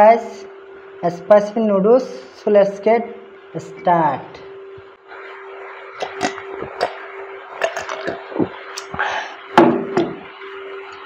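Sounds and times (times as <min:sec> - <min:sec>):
steady hum: 0:00.0 - 0:11.0
person gulping swallows: 0:06.0 - 0:07.0, 0:07.6 - 0:09.1.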